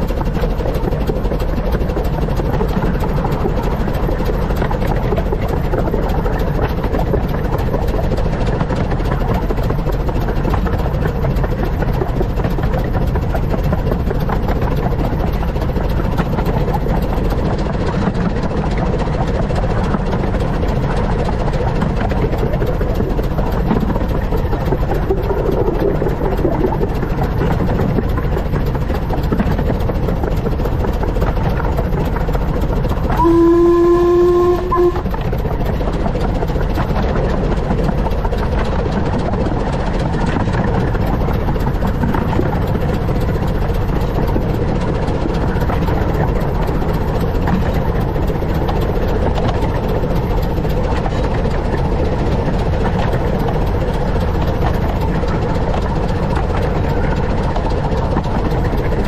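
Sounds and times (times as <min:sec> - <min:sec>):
steam locomotive rumbling: 0:00.0 - 0:59.0
train whistle blast: 0:33.1 - 0:35.2.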